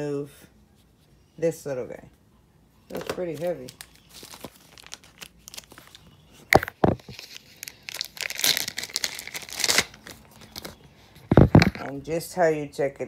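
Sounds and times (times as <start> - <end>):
plastic crinkling and rustling: 2.9 - 11.9.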